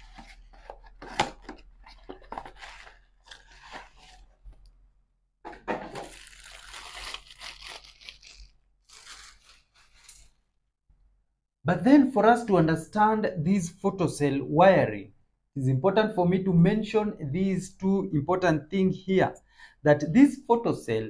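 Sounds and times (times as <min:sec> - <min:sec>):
packaging crinkling and tearing: 0:00.0 - 0:04.4, 0:05.8 - 0:10.4
packaging rustling: 0:00.0 - 0:04.6, 0:05.5 - 0:10.4.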